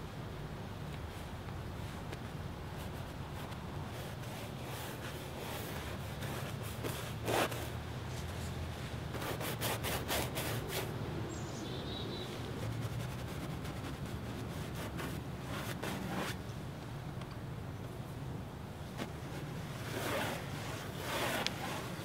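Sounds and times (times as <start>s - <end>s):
paint brush scraping on canvas: 2.7s - 10.9s, 12.2s - 16.4s, 19.0s - 22.0s
bird chirp: 11.3s - 12.5s.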